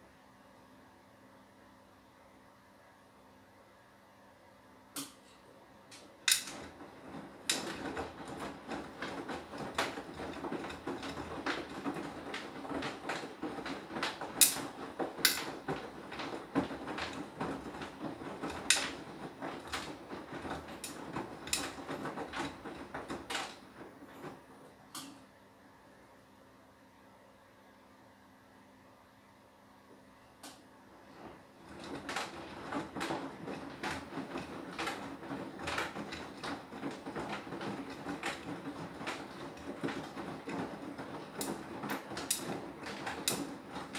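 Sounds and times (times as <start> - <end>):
washing machine drum tumbling laundry: 5.9 - 25.4, 30.9 - 43.9.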